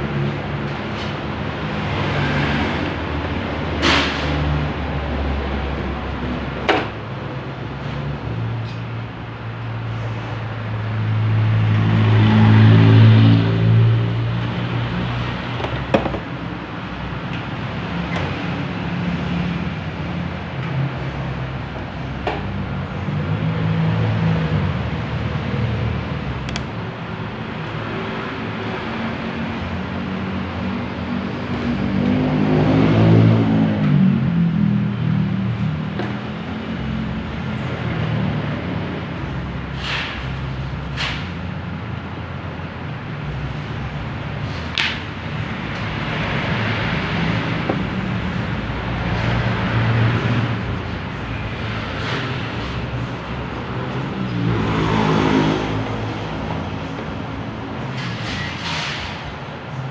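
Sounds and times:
sharp clicks and knocks: 15.5 - 16.4, 26.4 - 26.7.

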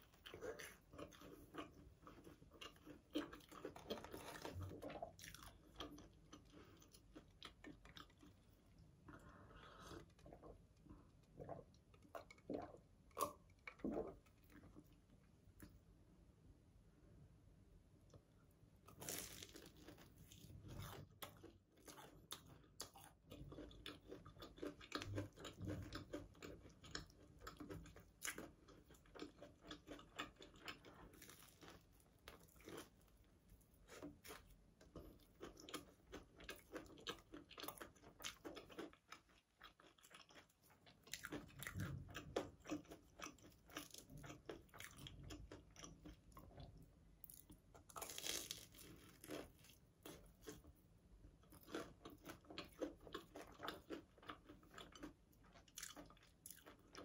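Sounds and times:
crunchy biting and chewing: 33.8 - 46.6, 47.3 - 50.7.

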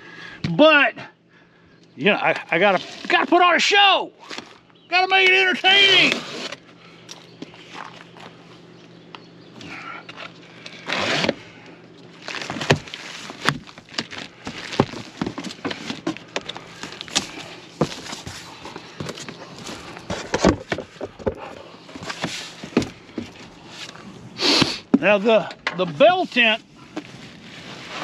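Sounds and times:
tape tearing from cardboard box: 5.9 - 6.6, 10.7 - 11.4, 12.2 - 16.2
plastic wrapping rustling: 12.1 - 20.3
cardboard knocking and rustling: 12.3 - 21.4.

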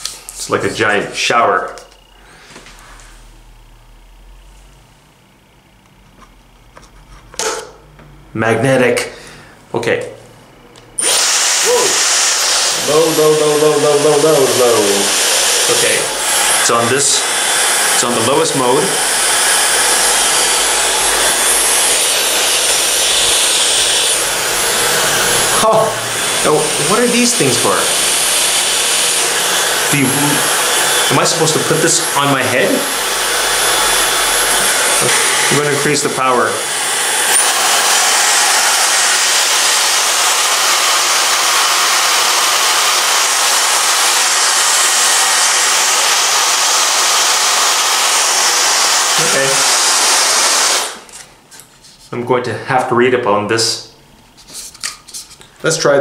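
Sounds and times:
high rising whine: 0.0 - 51.1
hair dryer blowing air: 7.4 - 7.7, 10.9 - 51.3.

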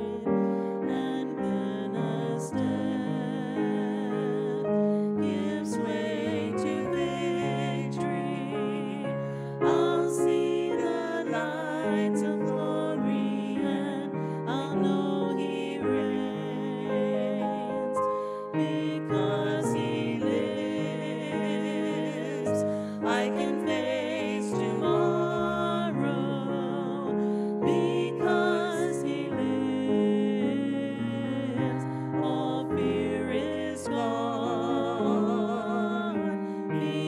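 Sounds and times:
women singing a hymn: 0.0 - 37.0.

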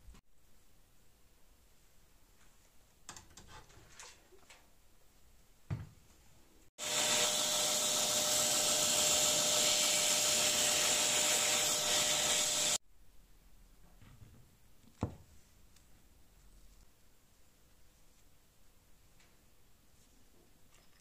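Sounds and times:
belt grinder sanding wood: 6.8 - 12.8.

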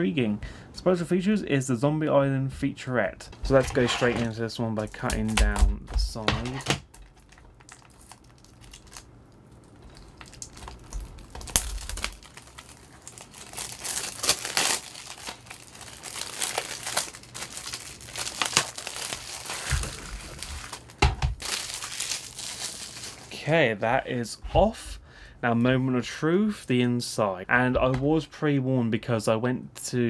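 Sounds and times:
plastic wrap crinkling and tearing: 6.8 - 23.4.

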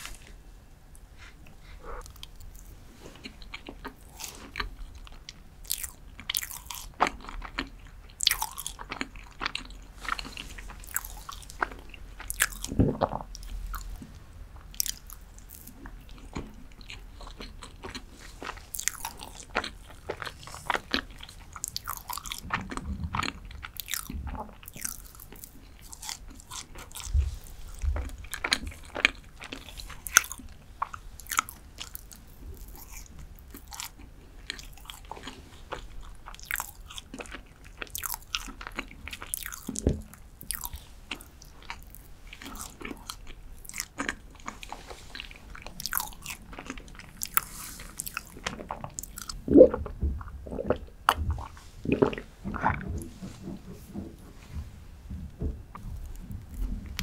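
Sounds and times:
wet chewing mouth sounds: 1.2 - 54.6, 55.7 - 57.0
soft low thumps: 49.3 - 57.0.

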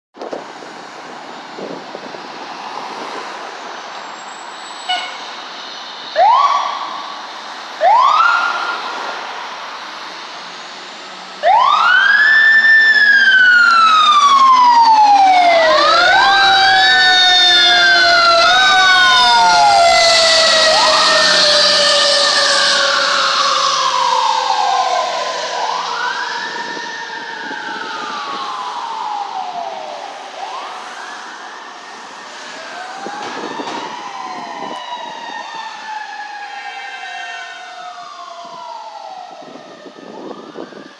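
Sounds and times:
fire truck siren wailing: 0.2 - 40.9
street noise: 0.2 - 40.9
siren whoops: 6.1 - 9.0, 11.4 - 40.9.

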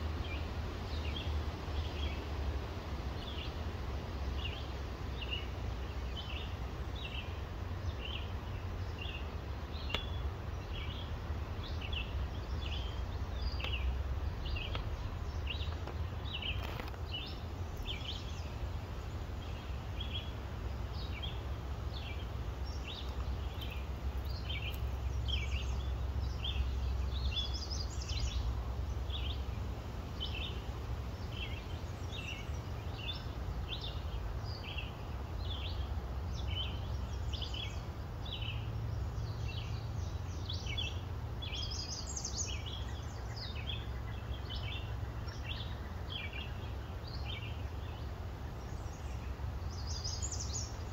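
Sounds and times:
steady low rumble: 0.0 - 41.5
birds chirping: 0.0 - 50.9.

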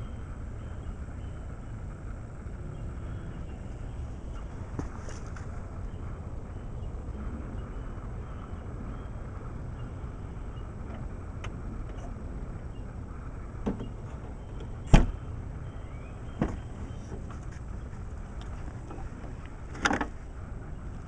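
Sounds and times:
low rumble: 0.0 - 21.0.

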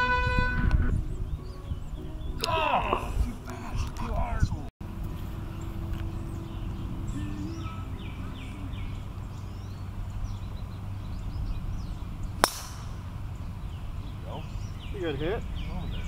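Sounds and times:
golf driver striking ball: 12.4 - 13.2.

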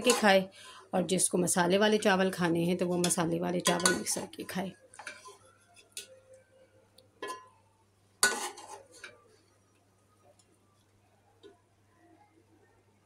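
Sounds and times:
metal spoon clinking on pot: 0.0 - 0.4, 3.0 - 4.2, 8.2 - 9.2.

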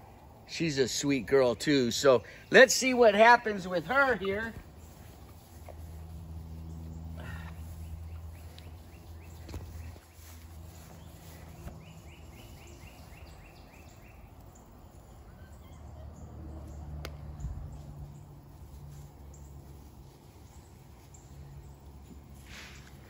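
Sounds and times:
steady low hum: 0.0 - 15.3.

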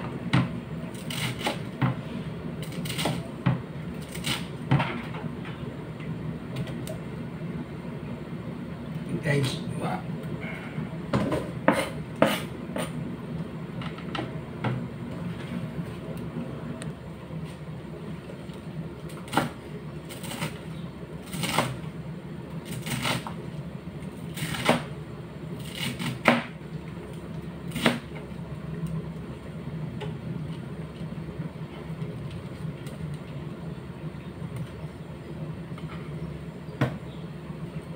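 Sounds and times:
steady low hum: 0.0 - 37.9
knife chopping on cutting board: 11.2 - 13.0.

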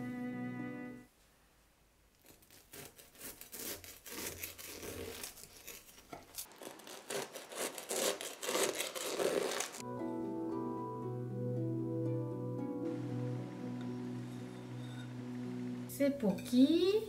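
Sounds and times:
knife cutting crisp pastry: 2.2 - 9.8.

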